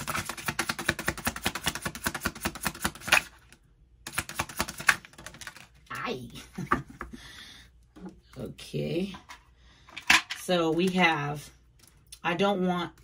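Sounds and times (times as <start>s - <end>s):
cards shuffled by hand: 4.1s - 5.8s.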